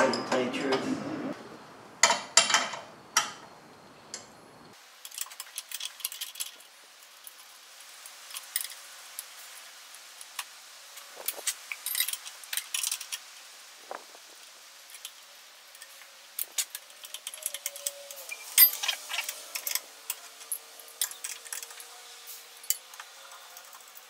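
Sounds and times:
metal tools clinking on engine: 11.7s - 13.2s, 16.6s - 21.9s.

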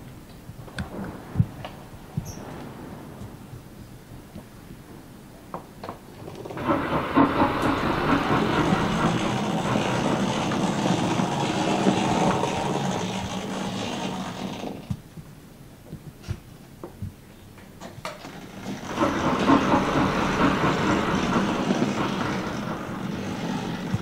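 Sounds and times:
wheels clicking on rails: 5.6s - 15.1s, 17.6s - 24.0s
model locomotive running rattle: 6.4s - 14.9s, 18.1s - 24.0s.

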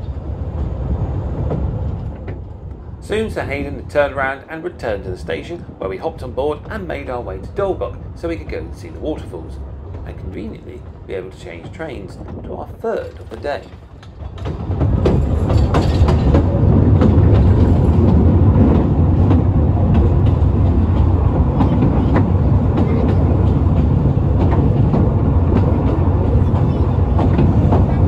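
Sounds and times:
train wheels rumbling on rails: 0.0s - 28.0s
wheels clicking over rail joints: 6.2s - 28.0s.

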